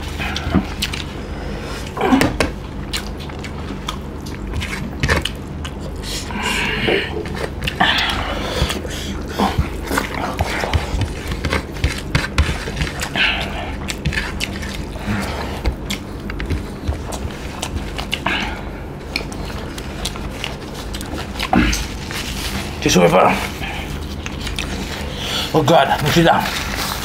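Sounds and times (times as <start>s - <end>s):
steady low hum: 0.0s - 27.0s
chewing and mouth clicks: 0.1s - 1.2s, 2.6s - 22.8s, 23.4s - 25.3s
fingers clicking on food: 15.6s - 18.3s, 19.1s - 21.9s.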